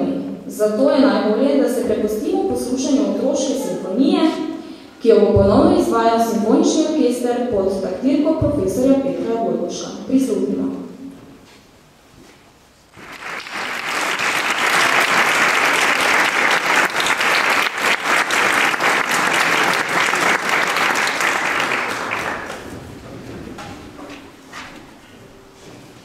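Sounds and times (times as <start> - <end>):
audience applauding: 12.9 - 23.0.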